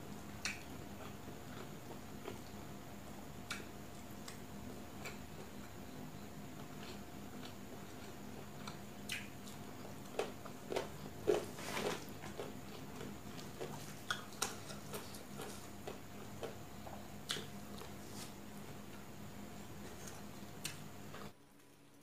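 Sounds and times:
chewing: 0.4s - 2.6s, 6.6s - 18.0s.

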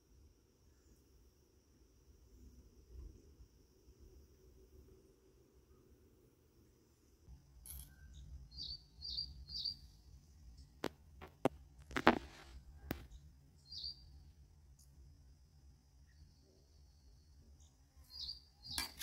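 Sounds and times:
bird chirping: 7.7s - 10.6s, 12.9s - 14.3s, 16.0s - 19.0s.

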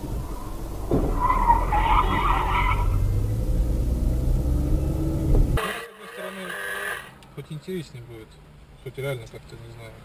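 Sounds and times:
car tyres screeching: 0.0s - 7.3s
low rumble of car and road: 0.0s - 10.0s.

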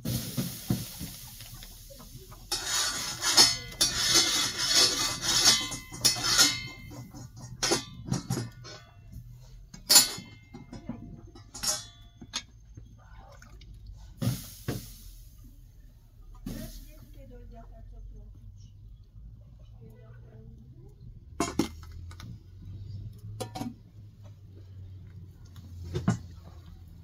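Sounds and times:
metal blade scraping griddle: 2.5s - 9.0s.

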